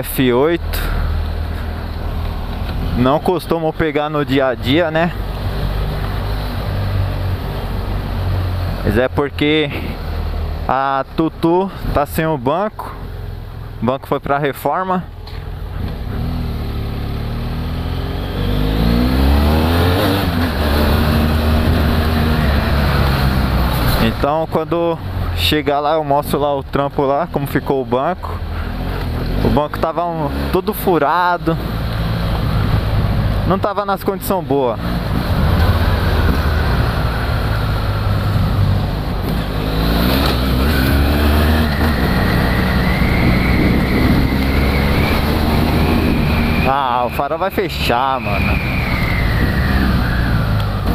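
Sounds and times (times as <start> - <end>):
motorcycle engine accelerating: 15.7 - 24.2, 34.8 - 46.8.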